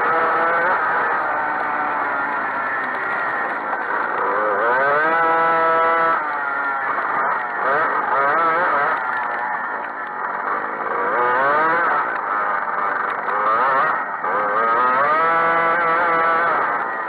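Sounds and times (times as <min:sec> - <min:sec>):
kart engine accelerating: 0:00.0 - 0:17.0.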